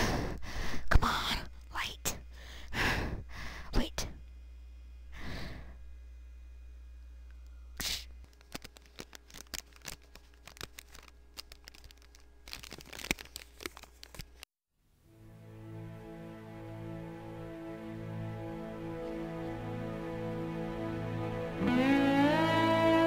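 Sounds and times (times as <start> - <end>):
crackling and crunching: 8.2 - 14.5
soft music: 15.0 - 23.0.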